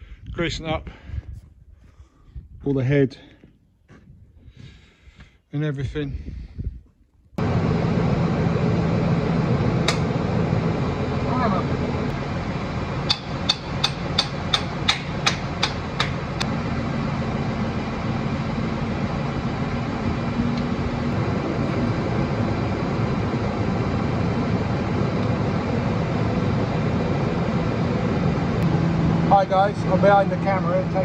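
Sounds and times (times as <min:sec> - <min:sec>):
tractor engine running: 0:07.4 - 0:31.0
sharp metallic knocks: 0:13.0 - 0:16.5.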